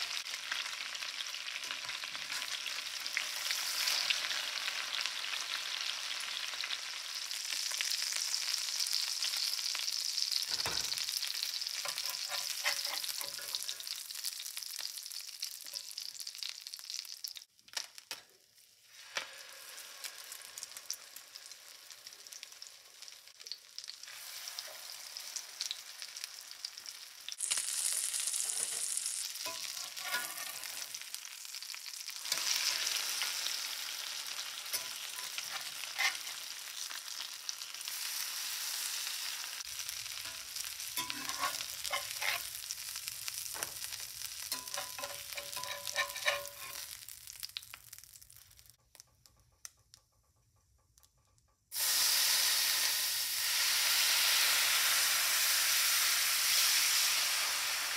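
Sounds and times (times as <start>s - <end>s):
chicken sizzling in a skillet: 0.0s - 49.1s, 51.7s - 57.9s
metal tongs clinking and scraping: 11.8s - 13.7s, 28.4s - 30.9s, 34.7s - 36.4s, 40.2s - 42.5s, 44.5s - 46.9s.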